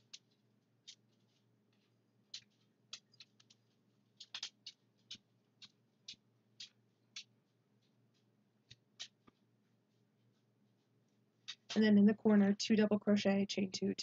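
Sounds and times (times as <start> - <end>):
crochet hook clicking: 2.3 - 3.6, 4.2 - 7.3, 11.4 - 11.8.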